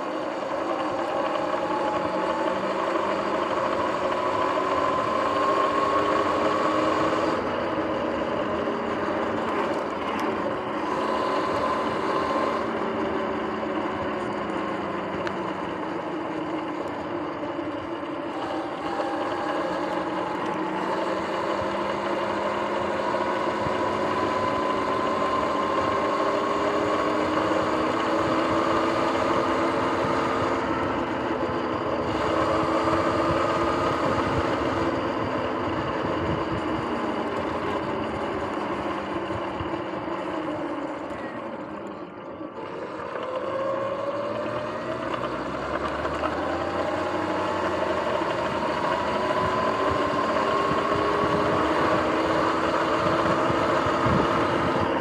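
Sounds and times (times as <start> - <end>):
electric motor whining: 0.0 - 55.0.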